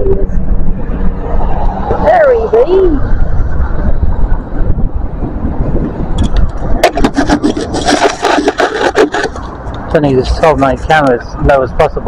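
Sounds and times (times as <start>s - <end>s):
camera handling scraping: 6.1s - 9.9s.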